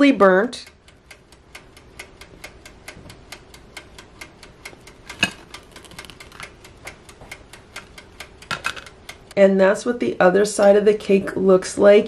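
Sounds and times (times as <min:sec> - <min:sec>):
dial timer ticking: 0:00.2 - 0:09.4.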